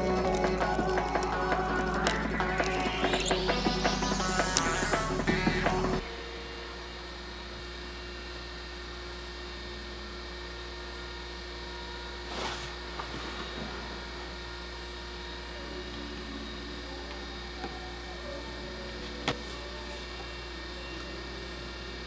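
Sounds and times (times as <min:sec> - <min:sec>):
low electrical hum: 0:00.0 - 0:22.0
brief scrape: 0:12.3 - 0:13.6.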